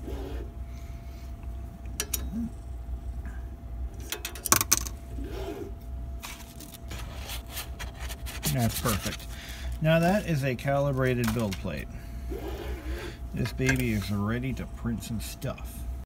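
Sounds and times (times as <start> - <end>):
steady hum: 0.0 - 16.0
light clicks and scrapes: 13.4 - 14.2.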